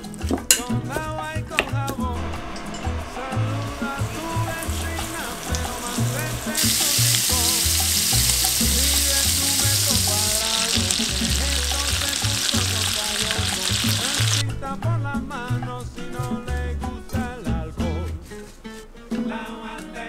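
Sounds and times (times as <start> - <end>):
beef sizzling in frying pan: 3.4 - 14.4.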